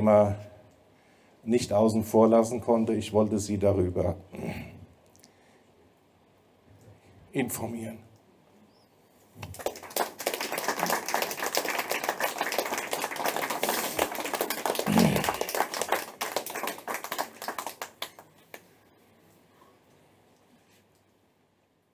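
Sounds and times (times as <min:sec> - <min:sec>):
audience applauding: 0:09.4 - 0:18.7.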